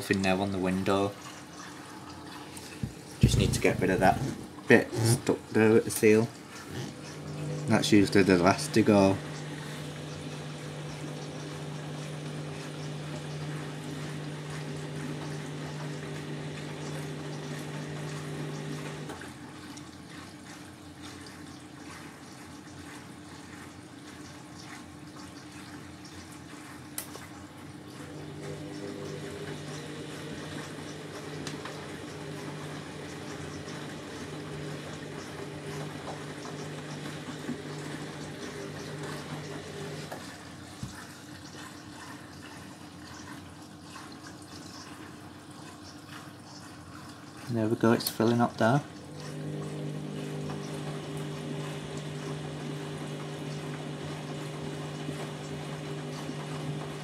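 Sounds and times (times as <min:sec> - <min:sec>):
low machine hum: 0:00.0 - 0:20.6, 0:27.6 - 0:43.0, 0:48.5 - 0:57.0
water pouring into drum: 0:00.0 - 0:57.0.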